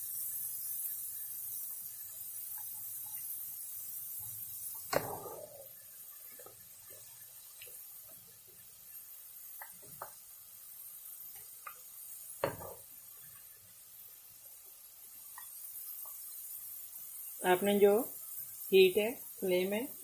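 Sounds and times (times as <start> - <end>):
deep-frying sizzle: 0.0 - 20.0
metal spoon tapping a pan: 12.4 - 12.9.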